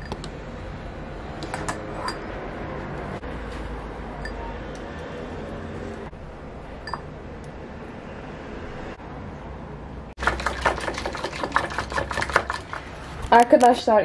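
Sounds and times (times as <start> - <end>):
spoon and whisk clinking bowl: 6.8 - 7.1, 10.2 - 12.9
rapid clicks and scrapes: 10.2 - 13.4.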